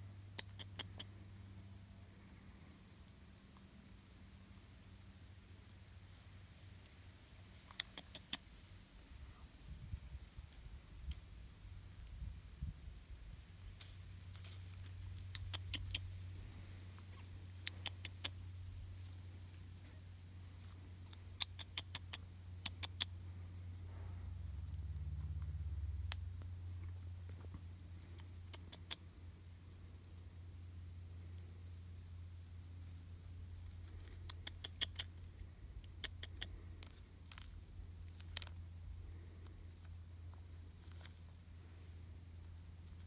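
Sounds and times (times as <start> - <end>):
faint insect chirr: 0.0 - 43.0
peanut shells clicking: 35.8 - 38.6.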